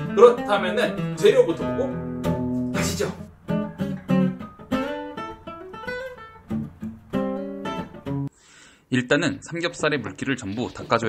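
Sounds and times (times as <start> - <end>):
strummed acoustic guitar chords: 0.0 - 8.3.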